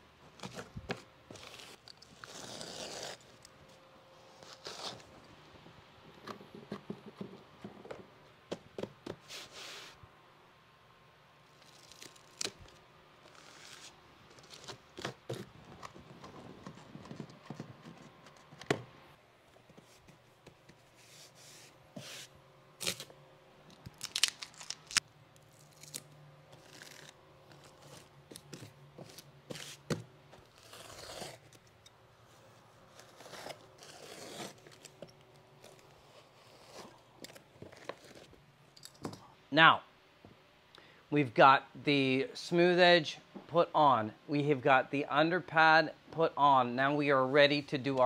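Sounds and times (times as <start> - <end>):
foam underpad handling and tearing: 0.3 - 3.5, 4.3 - 5.2, 11.6 - 16.0, 23.8 - 31.6, 32.8 - 38.4.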